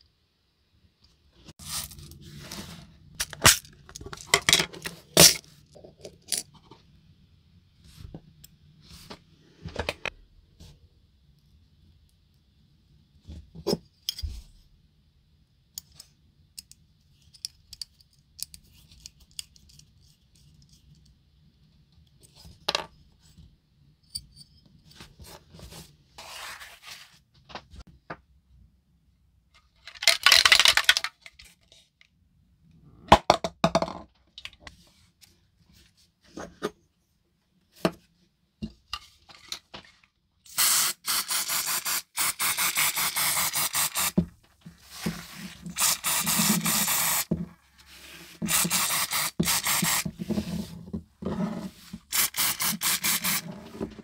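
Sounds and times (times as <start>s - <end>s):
aerosol spray can hissing: 40.5s - 44.2s, 45.7s - 47.3s, 48.5s - 50.0s, 52.1s - 53.4s.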